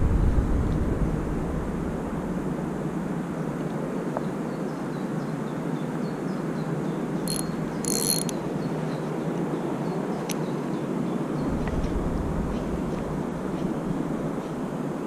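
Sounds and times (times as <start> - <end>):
outdoor background noise: 0.0 - 15.0
fishing reel ratcheting whirr: 7.3 - 8.4
reel click: 7.3 - 8.4.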